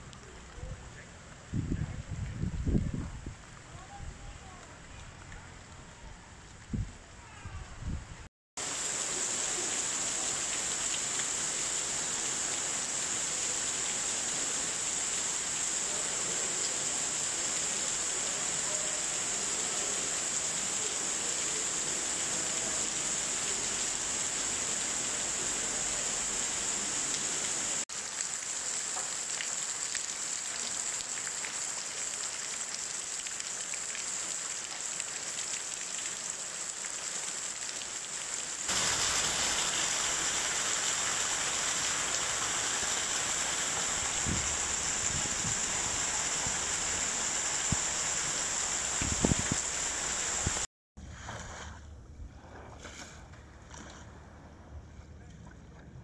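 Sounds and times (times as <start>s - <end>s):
torrential rain pouring: 8.6s - 50.7s.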